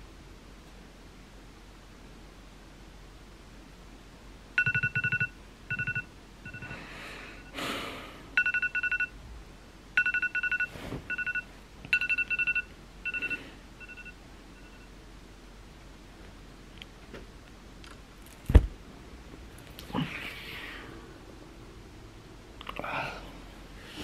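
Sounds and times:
high electronic alarm beeps: 4.6s - 6.8s, 8.4s - 9.1s, 10.0s - 14.9s.

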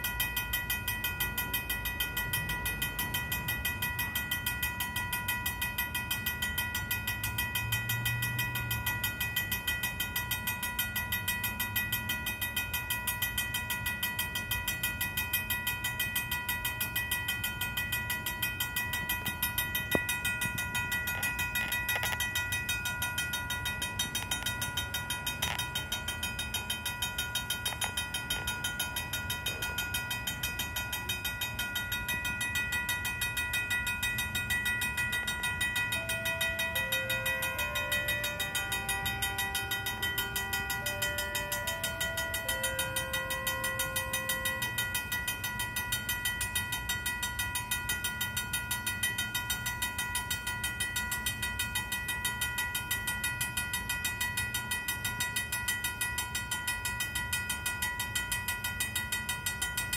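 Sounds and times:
freight train rumble: 0.0s - 47.7s
railroad crossing bell ringing: 0.0s - 59.9s.

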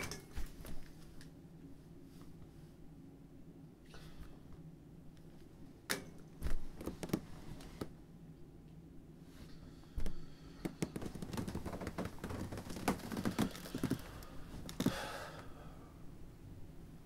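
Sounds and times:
bedding rustling: 6.4s - 8.0s, 10.0s - 15.1s.

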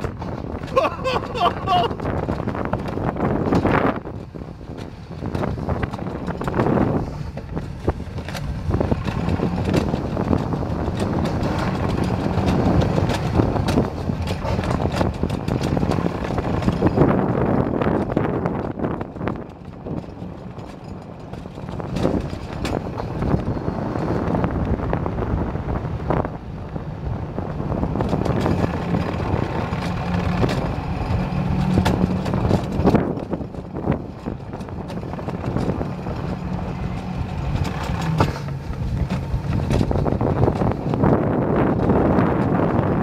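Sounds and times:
sled wheels rumbling on rails: 0.0s - 43.0s
wind buffeting microphone: 0.0s - 43.0s.

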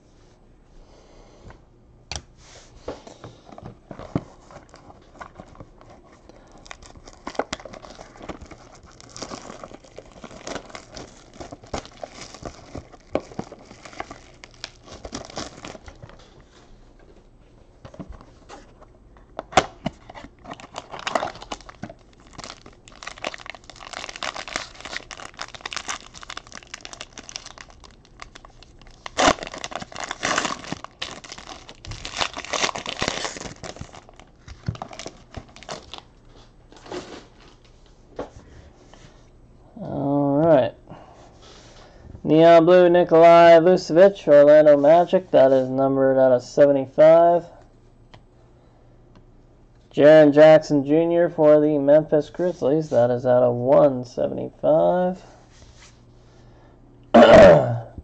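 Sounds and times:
wrappers crinkling and tearing: 4.1s - 16.3s, 20.0s - 37.7s.

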